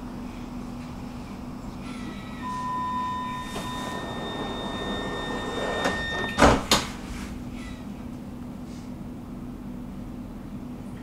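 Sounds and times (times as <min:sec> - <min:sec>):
train car low hum: 0:00.0 - 0:11.0
high warning tone: 0:01.8 - 0:06.7
doors closing with thud: 0:02.1 - 0:07.3.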